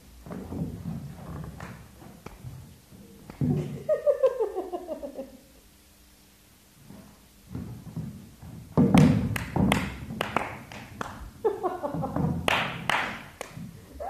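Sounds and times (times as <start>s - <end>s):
chair knocking and thudding: 0.2s - 2.6s, 6.9s - 10.8s, 11.8s - 12.8s
heeled footsteps on stage floor: 6.8s - 13.9s
sharp knocks: 7.5s - 10.8s.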